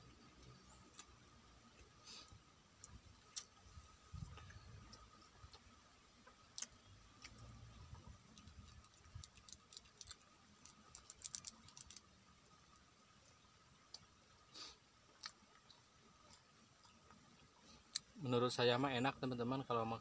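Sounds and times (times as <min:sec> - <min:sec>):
chewing and finger clicks: 0:02.8 - 0:03.6, 0:15.2 - 0:17.1.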